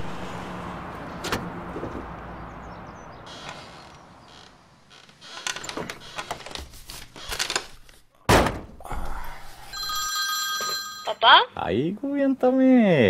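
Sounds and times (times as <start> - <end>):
car door shutting: 1.2 - 2.1.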